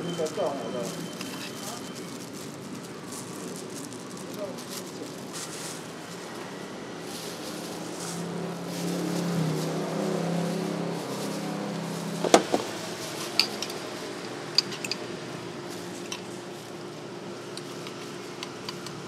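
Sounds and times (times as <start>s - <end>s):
metal utensils clinking on counter: 13.3s - 13.9s, 14.5s - 15.1s
spoon clinking in a jar: 14.5s - 15.1s.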